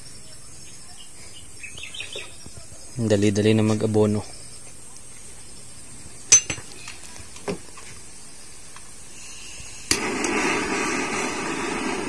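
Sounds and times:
steady flame hiss: 0:00.0 - 0:12.0.

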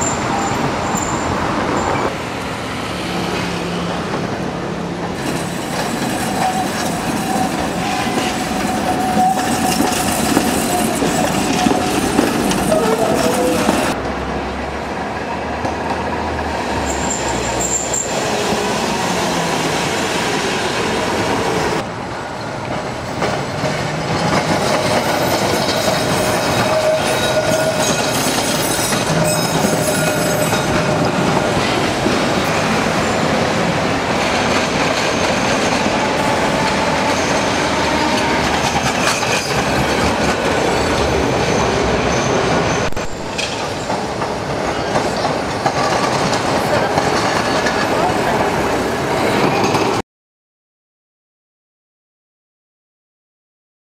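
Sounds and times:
city traffic: 0:00.0 - 0:50.0
streetcar wheels clattering on rails: 0:00.0 - 0:50.0
wheels squealing on curves: 0:16.8 - 0:18.8, 0:25.2 - 0:31.7.

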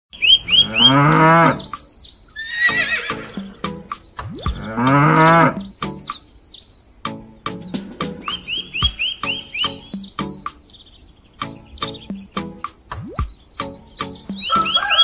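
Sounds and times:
birds chirping: 0:00.1 - 0:15.0
cow mooing: 0:00.5 - 0:01.7, 0:04.6 - 0:05.7.

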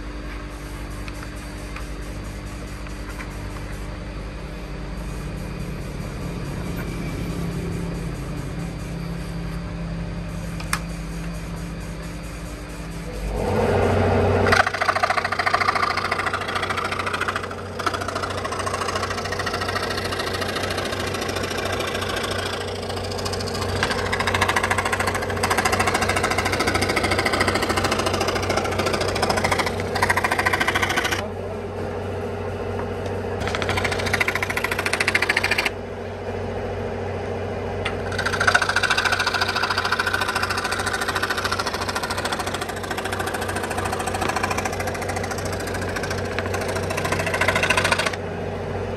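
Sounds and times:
power woodworking tool rattling: 0:14.4 - 0:31.2, 0:33.4 - 0:35.7, 0:37.8 - 0:48.2.

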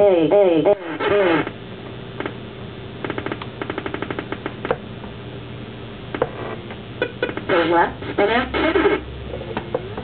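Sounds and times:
rapid stutter of clicks: 0:03.0 - 0:04.8.

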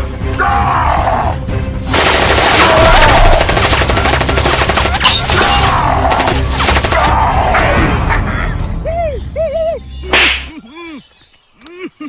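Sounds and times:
background music: 0:00.0 - 0:11.0
rapid machine-gun fire: 0:01.9 - 0:05.2, 0:06.0 - 0:07.1.

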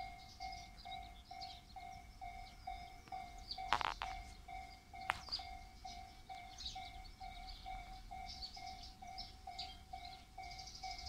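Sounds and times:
level crossing alarm bell ringing: 0:00.0 - 0:11.0.

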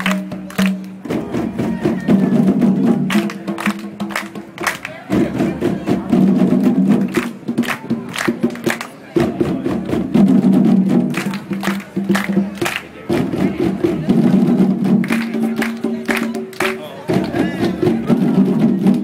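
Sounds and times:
djembe hand drumming: 0:00.0 - 0:08.6, 0:09.2 - 0:19.0
group of voices chanting: 0:15.3 - 0:19.0.

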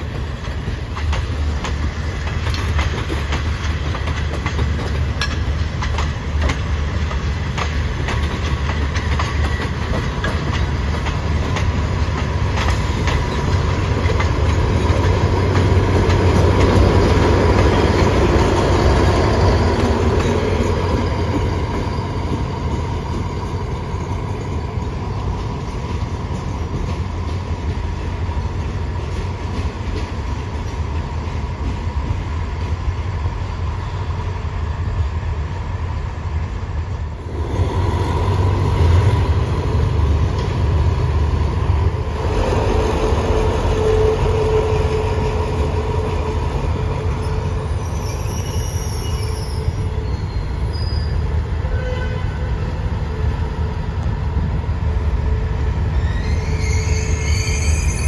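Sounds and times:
train wheels clicking over rail joints: 0:00.0 - 0:33.4
diesel locomotive passing: 0:00.0 - 0:58.0
train low rumble: 0:00.0 - 0:58.0.

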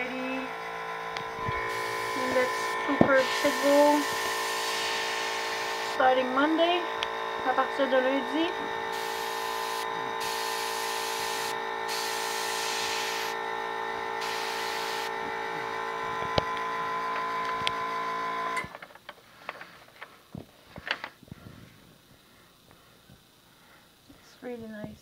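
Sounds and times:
compressor motor hum: 0:00.0 - 0:20.5
airbrush hissing spurts: 0:01.6 - 0:06.0, 0:08.9 - 0:13.4, 0:14.2 - 0:15.1.

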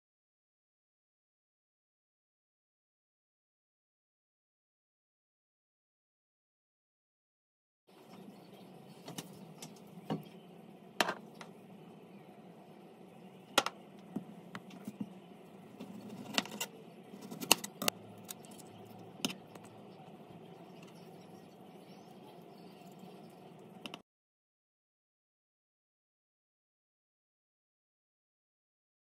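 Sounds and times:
steady low hum: 0:07.9 - 0:24.0.

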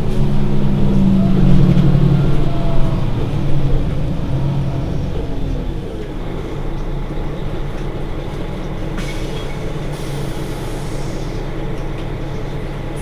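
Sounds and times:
bus engine idling: 0:00.0 - 0:13.0.

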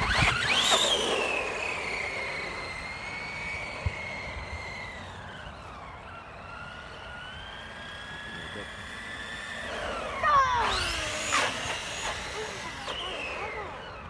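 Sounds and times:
toy truck motor whining: 0:00.0 - 0:14.0.

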